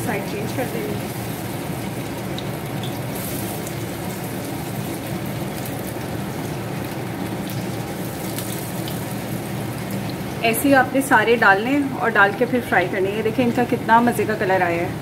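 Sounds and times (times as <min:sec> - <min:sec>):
bread sizzling on a pan: 0:00.0 - 0:11.6.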